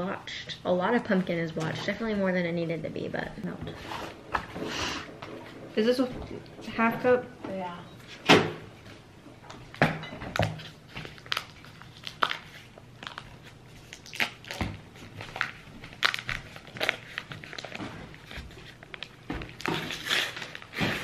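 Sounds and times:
paper wrapper crinkling: 10.6 - 21.0.

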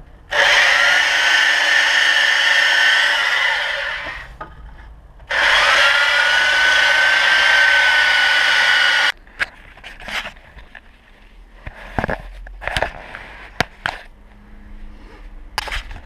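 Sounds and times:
electric sander on wood: 0.3 - 4.3, 5.3 - 9.1.

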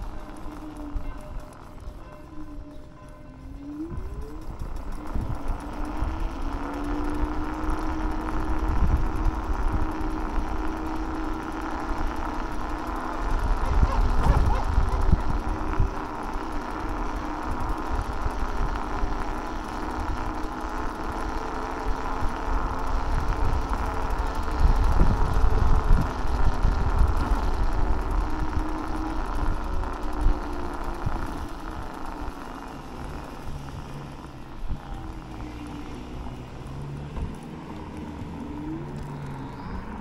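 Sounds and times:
wind buffeting microphone: 0.0 - 19.4, 22.0 - 31.9
electric motor whine: 0.0 - 40.0
road rumble: 0.0 - 40.0.

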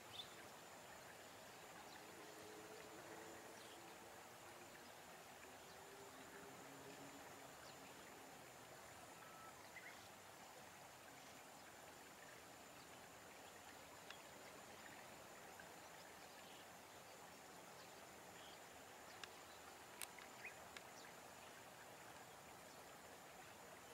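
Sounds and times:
faint outdoor hiss: 0.0 - 23.9
thin steady high tone: 8.9 - 10.1
faint short chirps: 9.2 - 9.6.

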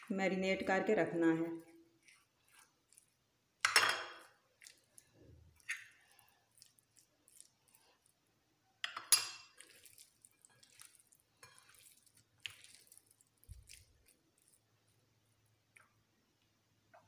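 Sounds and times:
hands working chicken in flour: 0.0 - 3.2, 4.2 - 8.2, 9.4 - 15.0.

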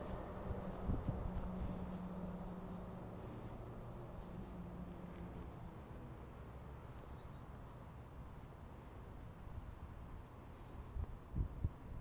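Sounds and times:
wind rumble on microphone: 0.0 - 4.7, 9.4 - 12.0.

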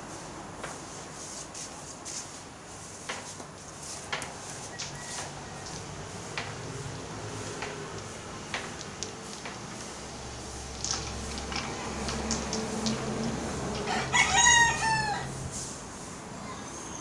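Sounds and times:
rooster crowing: 4.4 - 6.2, 13.4 - 15.5
billiard balls clicking: 7.4 - 13.9.

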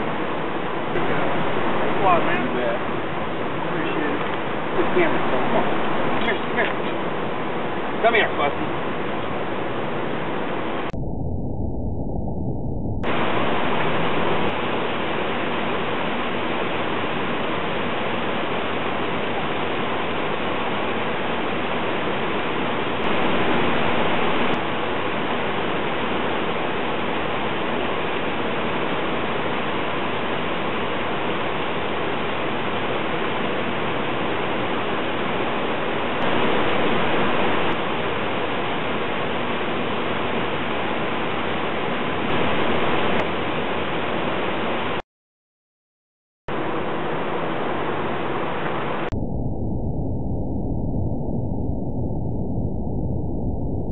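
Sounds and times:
river water rushing: 0.6 - 7.9, 46.5 - 49.0.

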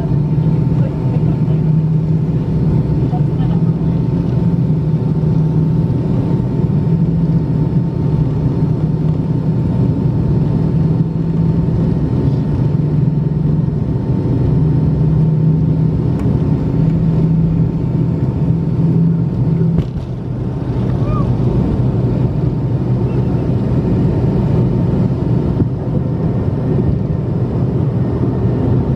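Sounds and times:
jet engines roaring at takeoff: 0.0 - 28.9.

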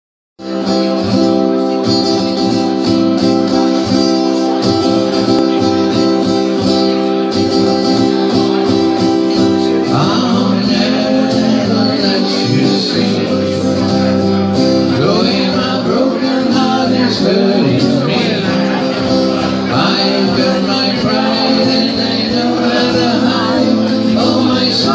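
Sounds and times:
acoustic guitar strumming: 0.4 - 24.9
man singing: 8.0 - 24.9.

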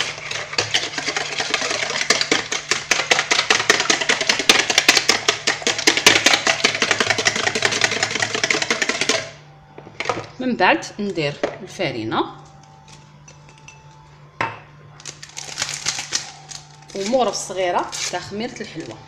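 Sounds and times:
whisk clicking against bowl: 0.0 - 9.3.

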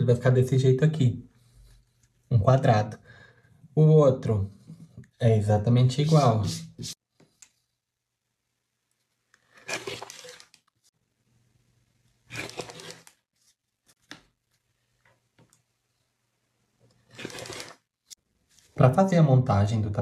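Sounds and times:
rotary cutter slicing fabric: 9.6 - 10.6, 12.3 - 13.2, 17.1 - 17.8.

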